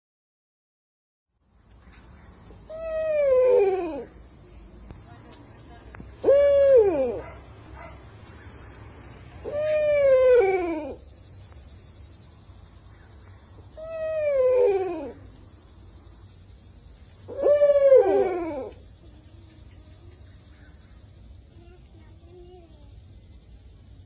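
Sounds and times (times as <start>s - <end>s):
faint high whine: 1.4s - 24.0s
loud wailing call: 2.7s - 4.2s, 6.2s - 7.5s, 9.4s - 11.0s, 13.8s - 15.3s, 17.3s - 18.8s.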